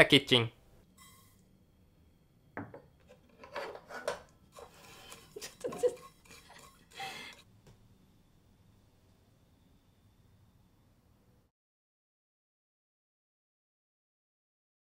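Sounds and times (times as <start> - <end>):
dishes and utensils clattering: 3.0 - 7.4.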